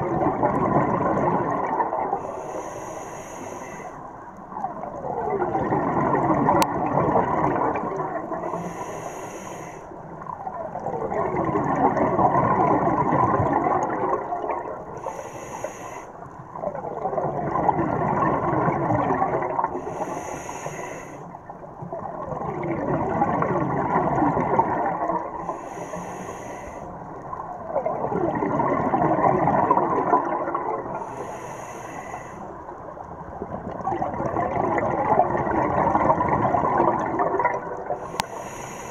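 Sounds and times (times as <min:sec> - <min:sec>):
gurgling exhaust bubbles: 0:00.0 - 0:02.2, 0:04.6 - 0:08.5, 0:10.4 - 0:14.9, 0:16.6 - 0:19.8, 0:21.8 - 0:25.4, 0:27.5 - 0:31.0, 0:33.3 - 0:38.2
diver inhaling through regulator: 0:02.1 - 0:04.1, 0:08.3 - 0:10.2, 0:14.9 - 0:16.3, 0:19.7 - 0:21.4, 0:25.4 - 0:27.3, 0:30.9 - 0:32.7, 0:38.0 - 0:38.9.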